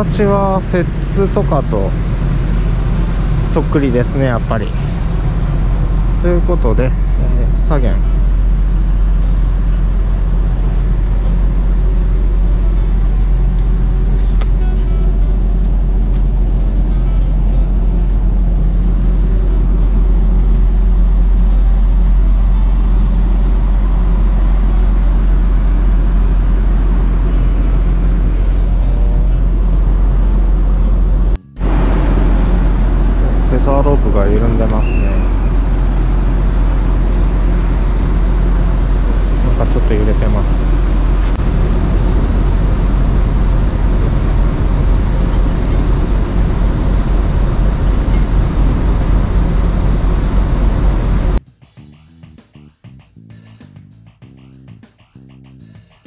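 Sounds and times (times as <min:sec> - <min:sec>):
steady low rumble: 0:00.0 - 0:55.8
wind buffeting microphone: 0:15.4 - 0:51.4.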